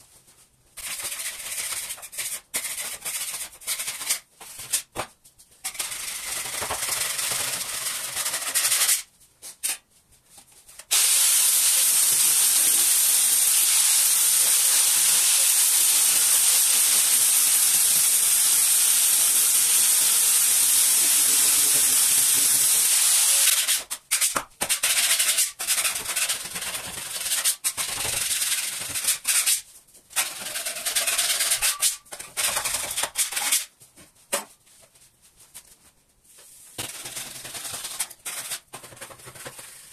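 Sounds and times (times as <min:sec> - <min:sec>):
wooden boards being sanded: 0:11.0 - 0:23.6.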